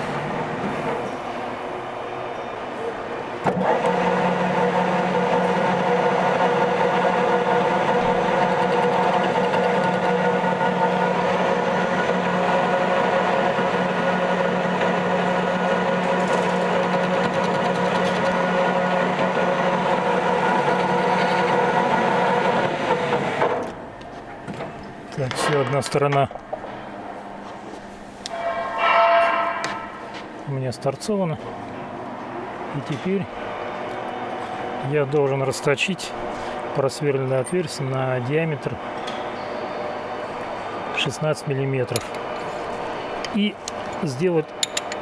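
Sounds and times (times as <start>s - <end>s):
metal lathe running: 3.4s - 23.5s, 41.8s - 45.0s
lathe tool cutting metal: 3.6s - 23.4s.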